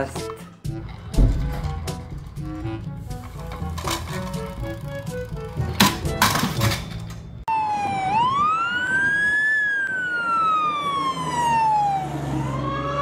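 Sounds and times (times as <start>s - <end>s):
low rumble: 0.7s - 5.3s
fire engine siren wailing: 7.5s - 13.0s.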